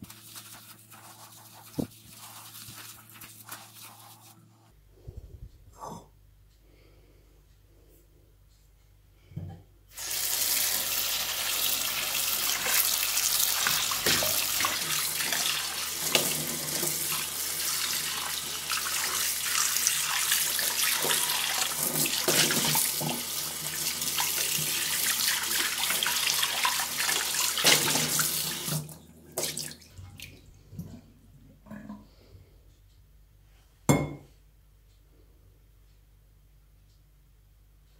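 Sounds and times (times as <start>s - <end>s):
pan rubbed by hand: 0.0s - 5.2s
tap water running onto steel pan: 10.0s - 29.6s.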